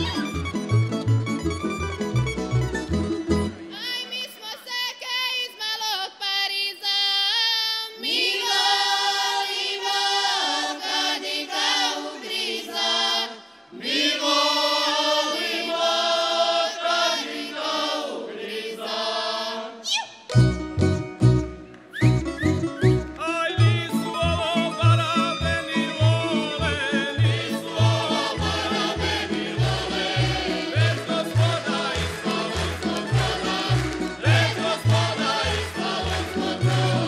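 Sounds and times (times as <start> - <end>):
plucked string band: 20.3 - 26.3
women singing folk song: 27.0 - 37.0.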